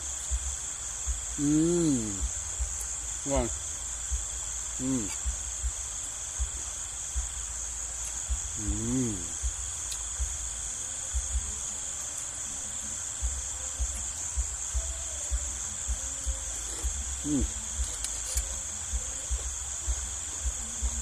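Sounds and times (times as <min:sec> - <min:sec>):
crickets trilling: 0:00.0 - 0:21.0
person humming: 0:01.4 - 0:02.4, 0:04.8 - 0:05.3, 0:08.4 - 0:09.5, 0:13.2 - 0:21.0.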